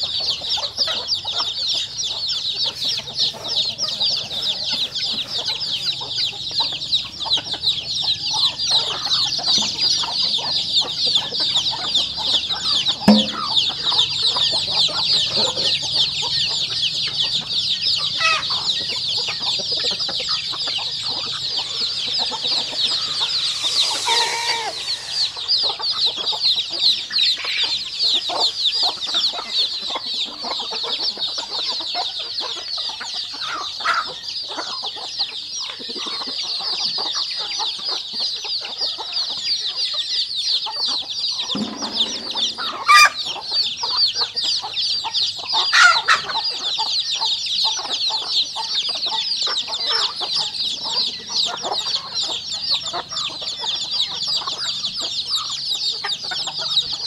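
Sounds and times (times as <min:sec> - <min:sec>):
chicks peeping: 0:00.0 - 0:26.3, 0:27.0 - 0:43.4
hens clucking: 0:16.8 - 0:25.5, 0:41.6 - 0:43.2
adult chicken call: 0:21.6 - 0:25.5.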